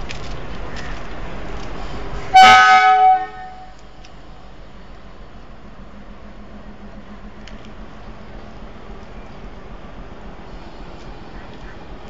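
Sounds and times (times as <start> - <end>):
train horn blast: 2.3 - 3.8.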